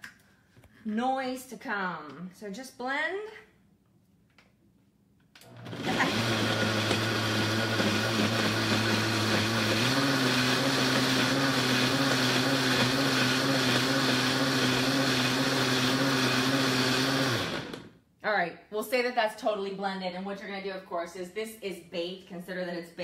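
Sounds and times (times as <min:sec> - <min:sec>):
blender motor running: 0:05.4 - 0:17.9.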